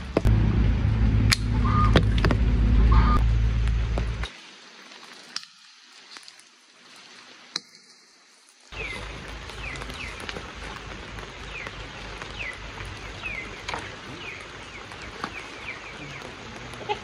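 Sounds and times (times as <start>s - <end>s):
low steady rumble: 0.0s - 4.3s
tree branches clicking: 3.6s - 17.0s
bird chirping: 8.7s - 17.0s.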